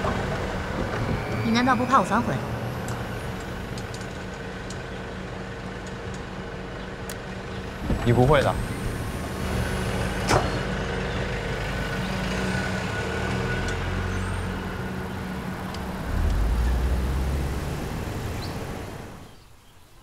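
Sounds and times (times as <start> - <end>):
van engine running: 0.0 - 19.4.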